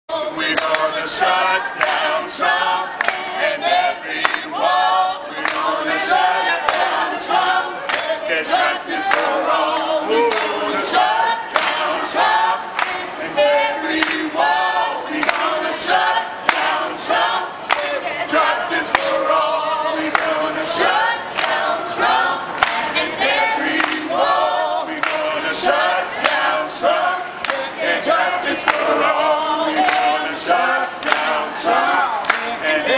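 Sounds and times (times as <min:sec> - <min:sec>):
mixed choir singing: 0:00.1 - 0:32.9
hand clapping: 0:00.5 - 0:00.9, 0:03.0 - 0:03.3, 0:04.2 - 0:04.5, 0:05.4 - 0:05.8, 0:07.8 - 0:08.2, 0:10.3 - 0:10.6, 0:12.7 - 0:13.0, 0:14.0 - 0:14.3, 0:16.5 - 0:16.8, 0:17.7 - 0:18.0, 0:18.9 - 0:19.2, 0:20.0 - 0:20.4, 0:21.4 - 0:21.7, 0:22.6 - 0:23.0, 0:23.8 - 0:24.1, 0:24.9 - 0:25.3, 0:27.4 - 0:27.7, 0:28.6 - 0:29.0, 0:29.8 - 0:30.2, 0:31.0 - 0:31.4, 0:32.2 - 0:32.6.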